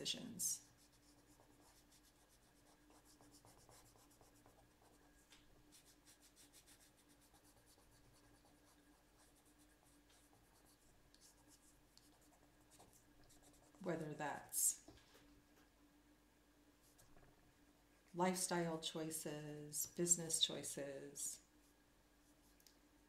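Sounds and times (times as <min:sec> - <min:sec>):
pencil scratching on paper: 0:00.2 - 0:13.9.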